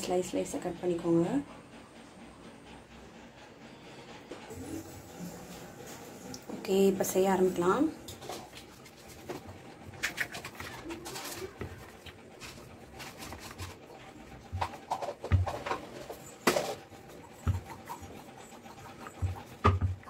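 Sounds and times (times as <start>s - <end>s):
rolling pin rolling dough: 8.8s - 20.0s.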